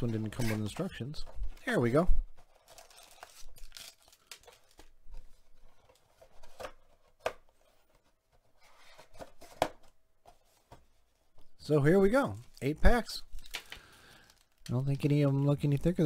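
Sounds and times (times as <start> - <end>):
cardboard rustling and scraping: 0.0 - 3.6, 4.5 - 11.5.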